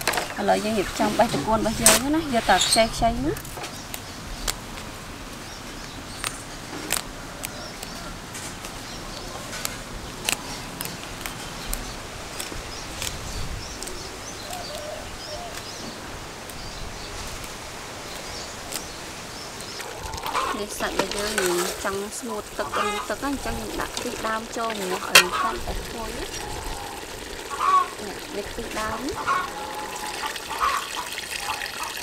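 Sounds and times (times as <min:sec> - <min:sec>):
vegetable stems snapping: 0:06.2 - 0:13.2, 0:18.6 - 0:19.0.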